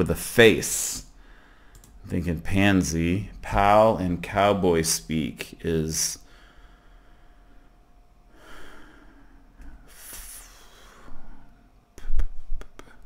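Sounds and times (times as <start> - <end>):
sharp clicks: 1.7 - 2.0.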